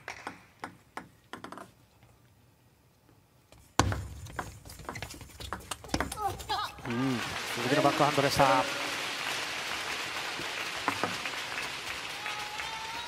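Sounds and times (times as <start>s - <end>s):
table tennis ball hits: 3.8s - 6.4s
venue noise: 6.8s - 13.0s.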